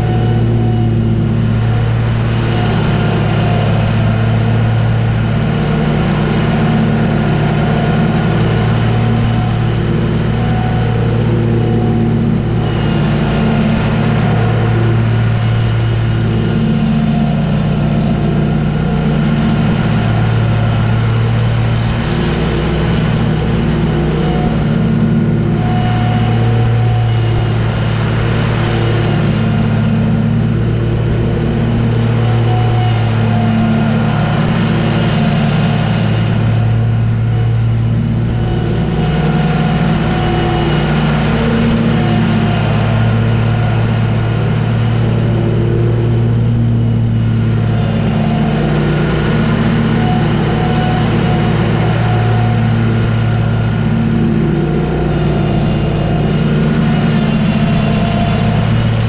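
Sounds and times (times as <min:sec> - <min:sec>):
lawn mower engine drone: 0:00.0 - 0:59.0.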